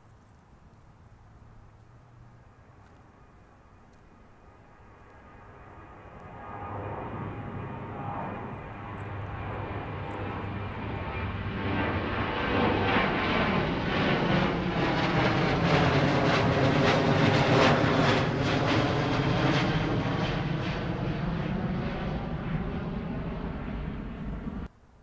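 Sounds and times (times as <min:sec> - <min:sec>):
jet engines roaring overhead: 0:01.7 - 0:24.7.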